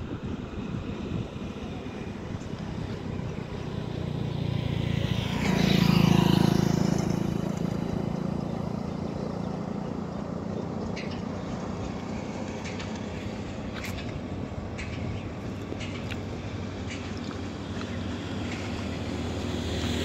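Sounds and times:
vehicle driving past: 2.7 - 13.7.

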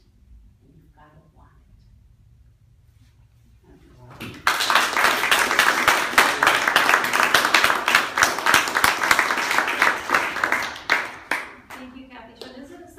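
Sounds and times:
small audience applauding: 4.1 - 12.6.

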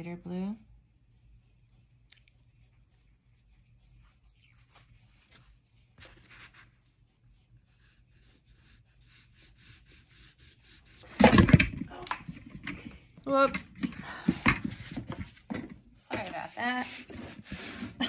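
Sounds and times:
oil pastel scratching on paper: 3.3 - 11.1, 16.3 - 18.0.

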